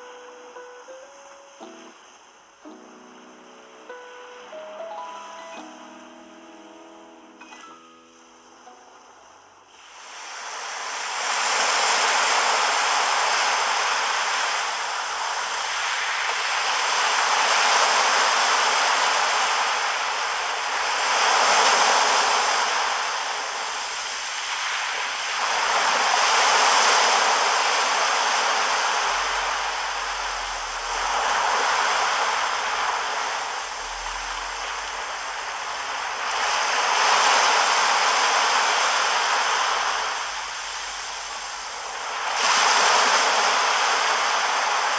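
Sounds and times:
surf breaking on a beach: 9.6s - 44.9s.

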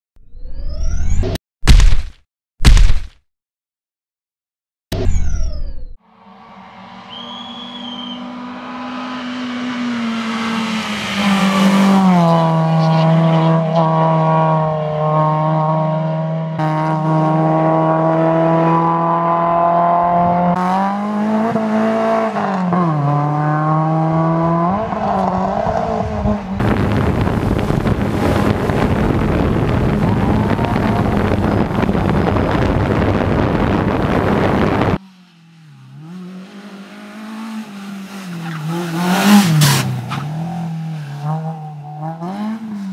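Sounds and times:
rally car engine at high revs: 7.1s - 42.9s.

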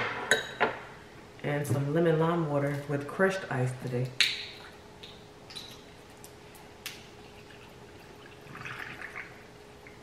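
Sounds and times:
water trickling into glass of ice: 7.2s - 9.4s.

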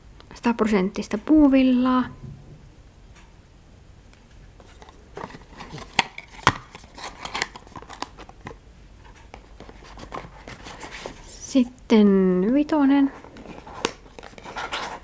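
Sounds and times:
cardboard box rustling and tapping: 4.6s - 8.6s.

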